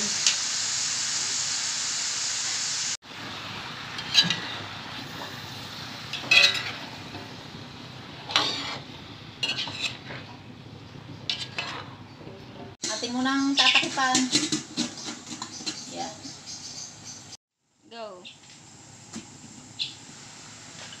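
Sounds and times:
vegetables sizzling in a wok: 0.0s - 17.4s, 18.1s - 21.0s
metal spatula scraping a wok: 3.9s - 7.4s, 8.1s - 10.5s, 11.1s - 16.2s.

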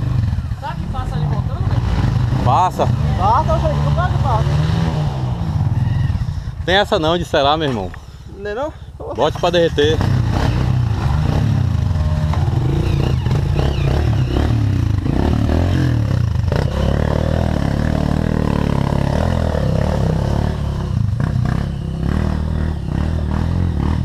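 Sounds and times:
dirt bike engine droning: 0.0s - 24.0s
dirt bike engine revving in mud: 1.3s - 6.2s, 9.8s - 24.0s.

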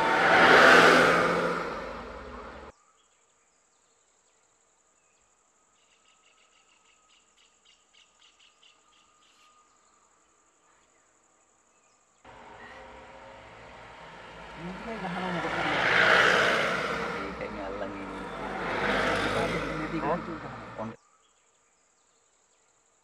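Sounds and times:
large vehicle passing: 0.0s - 2.7s, 12.3s - 21.0s
steady low rumble: 0.0s - 2.7s.

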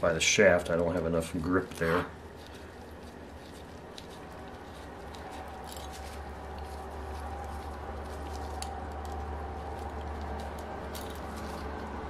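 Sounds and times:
steady low hum: 0.0s - 12.0s
metallic ticks and scrapes: 0.6s - 12.0s.

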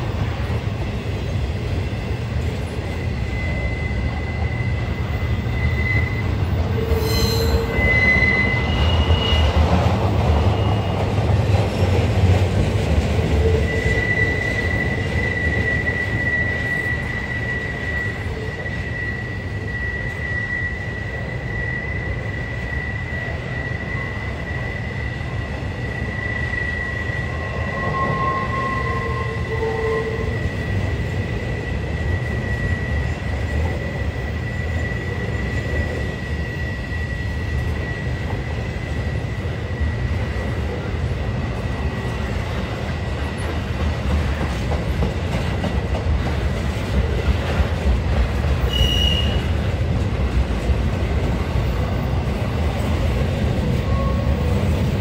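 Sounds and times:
freight train rumbling past: 0.0s - 55.0s
high-pitched wheel squeal: 2.8s - 9.8s, 10.4s - 11.2s, 13.2s - 40.0s, 48.6s - 49.6s, 53.7s - 55.0s.

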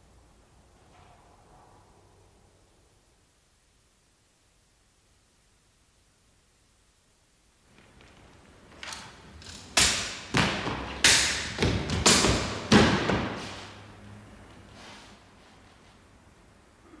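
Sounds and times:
sword cutting knocks and thuds: 9.7s - 13.5s.

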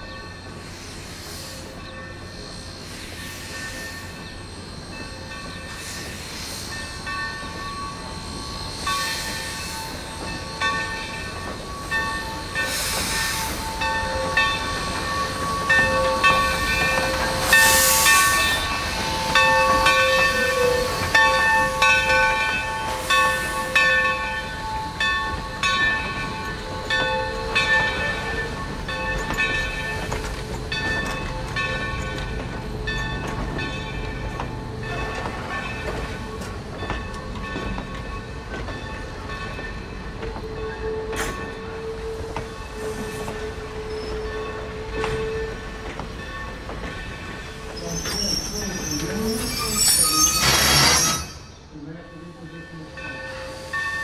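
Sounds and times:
steam locomotive rumbling: 0.0s - 54.0s
loud steam hiss: 0.3s - 30.6s, 47.2s - 51.7s, 52.5s - 54.0s
high squealing wheels: 39.4s - 51.7s.

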